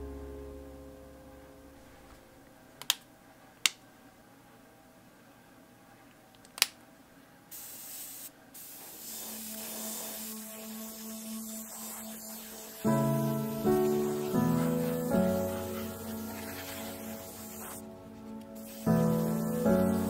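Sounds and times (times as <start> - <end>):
airbrush hissing: 7.5 - 20.0.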